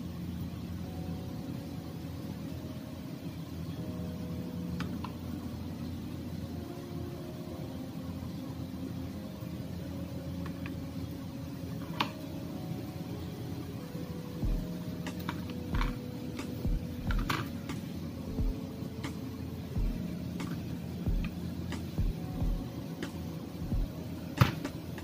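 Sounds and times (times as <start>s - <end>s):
low mechanical hum: 0.0s - 25.0s.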